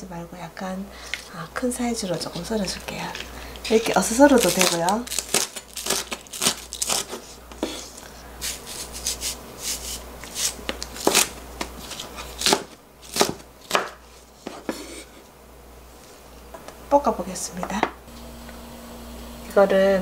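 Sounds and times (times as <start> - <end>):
knife chopping on wooden board: 10.2 - 11.8, 12.4 - 14.9.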